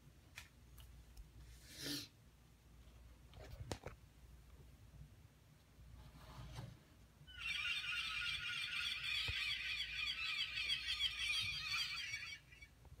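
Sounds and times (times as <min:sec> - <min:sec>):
seagull cries through speaker: 0:07.3 - 0:12.7.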